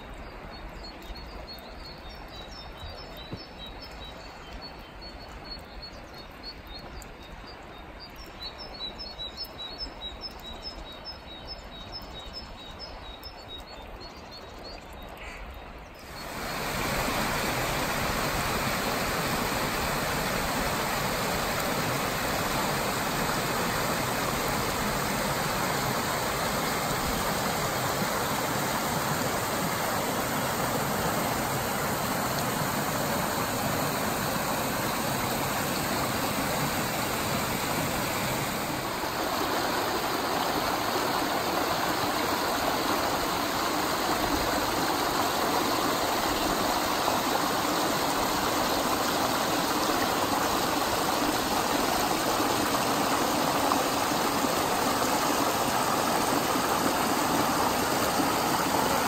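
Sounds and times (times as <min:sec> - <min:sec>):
brook splashing over stones: 0:14.6 - 0:59.0.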